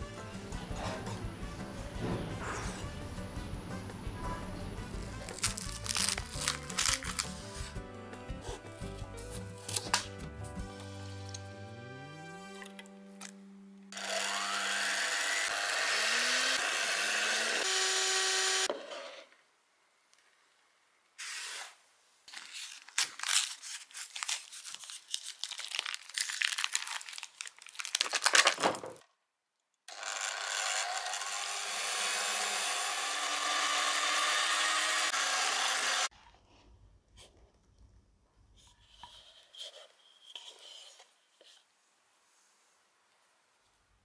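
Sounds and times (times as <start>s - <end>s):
foil packet crinkling: 5.0s - 7.7s, 22.3s - 29.1s
electric hand mixer whipping: 13.9s - 18.7s, 29.9s - 36.1s.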